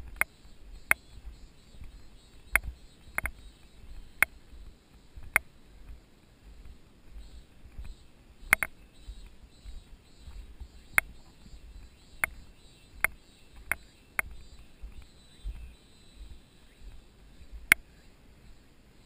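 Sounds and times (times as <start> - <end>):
bicycle clicks and ticks: 1.8 - 4.6, 7.7 - 9.4.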